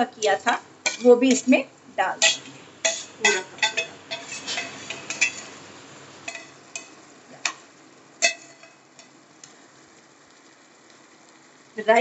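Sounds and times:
faint sizzle: 0:00.0 - 0:12.0
spoon scraping metal pan: 0:00.8 - 0:01.6, 0:02.2 - 0:05.6, 0:06.2 - 0:07.6, 0:08.2 - 0:09.2.

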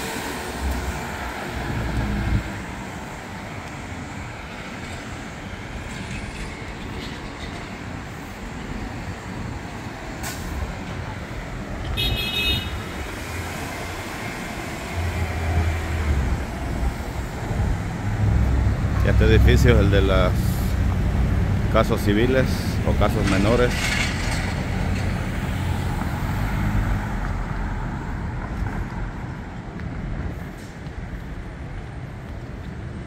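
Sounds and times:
vehicle rumbling past: 0:00.0 - 0:08.0, 0:12.7 - 0:29.6
bus engine rumbling: 0:00.0 - 0:33.0
traffic hum: 0:00.0 - 0:33.0.

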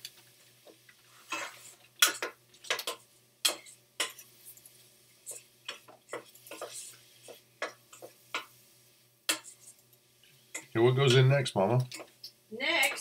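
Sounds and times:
wooden spoon scraping saucepan: 0:01.1 - 0:01.8, 0:05.2 - 0:08.5.

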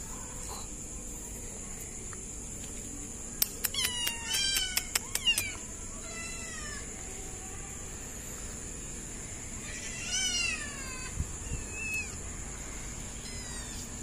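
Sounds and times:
sharp clicks: 0:03.4 - 0:05.6.

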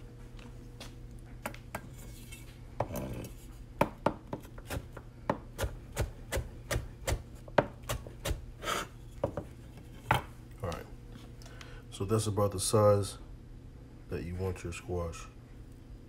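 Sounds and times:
knife chopping on cutting board: 0:03.8 - 0:09.5.

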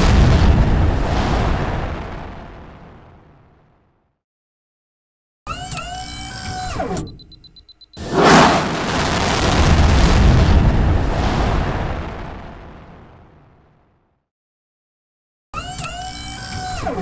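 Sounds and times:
rocket roar blast: 0:08.0 - 0:11.6.

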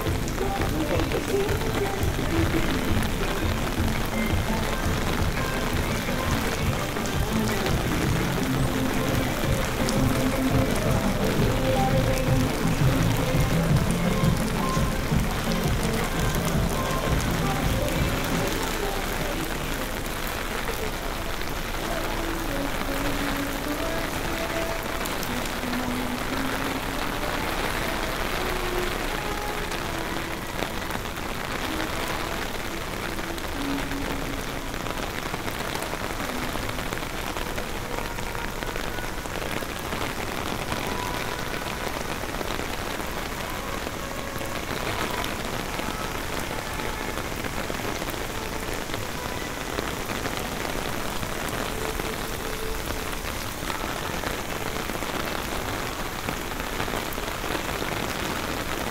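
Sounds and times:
steady rain falling: 0:00.0 - 0:58.9.

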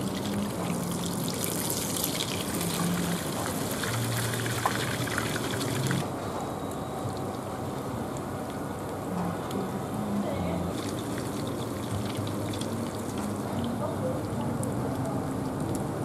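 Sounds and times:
oil sizzling in a frying pan: 0:00.0 - 0:06.0.

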